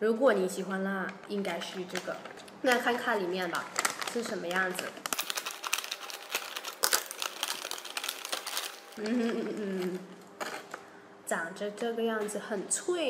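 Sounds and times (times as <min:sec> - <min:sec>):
plastic bag crinkling: 0:01.0 - 0:10.9.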